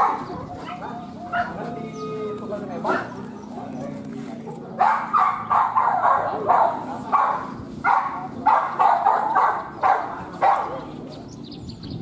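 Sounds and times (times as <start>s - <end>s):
dog barking: 0.0s - 1.6s, 2.8s - 3.2s, 4.8s - 10.9s.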